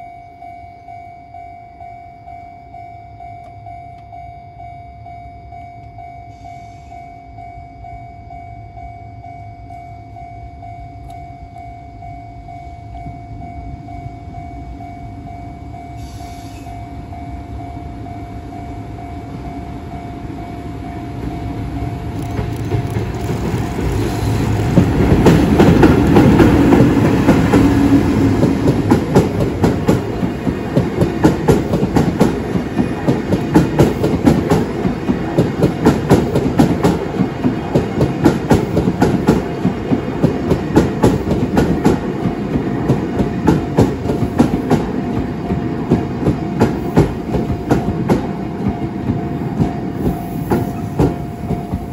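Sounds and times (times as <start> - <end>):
level crossing warning tone: 0.0 - 51.9
locomotive rumble passing: 18.8 - 51.9
wheels clattering over rail joints: 22.2 - 51.9.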